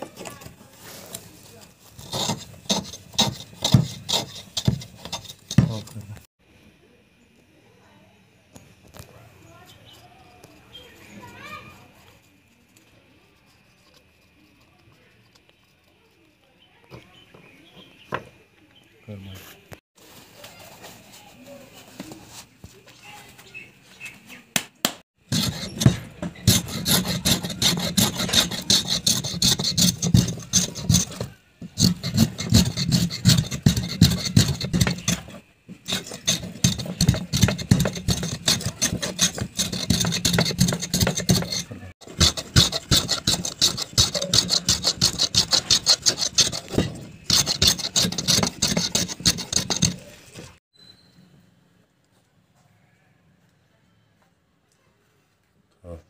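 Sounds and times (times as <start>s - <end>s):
hand tools scraping wood: 0.0s - 6.3s, 25.2s - 50.6s
hand plane shaving wood: 1.9s - 6.2s, 25.2s - 50.6s.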